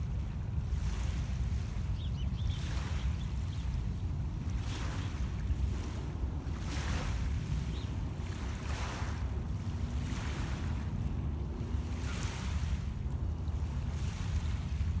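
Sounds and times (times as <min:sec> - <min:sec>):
wind rumble on microphone: 0:00.0 - 0:15.0
waves lapping on pebble shore: 0:04.5 - 0:11.0, 0:11.8 - 0:12.8.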